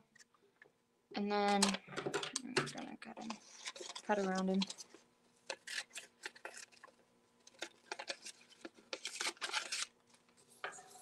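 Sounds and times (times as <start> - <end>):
paper rustling: 3.2 - 11.0.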